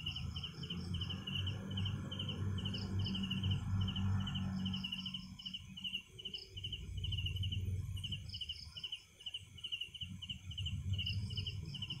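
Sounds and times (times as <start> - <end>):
crickets chirping: 0.0 - 12.0
higher-pitched insect: 0.0 - 12.0.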